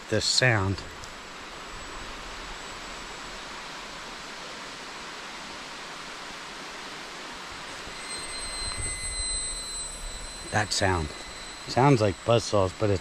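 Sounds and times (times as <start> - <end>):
cicadas buzzing: 0.0 - 13.0.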